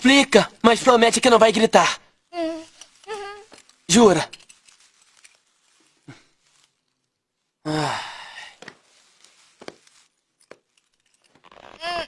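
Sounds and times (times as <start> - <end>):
faint clicks and rustles: 2.1 - 7.6, 8.4 - 12.0.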